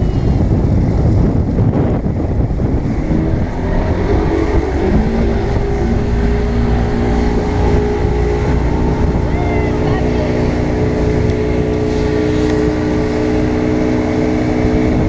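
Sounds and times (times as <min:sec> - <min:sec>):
outboard motor accelerating: 0:00.0 - 0:15.0.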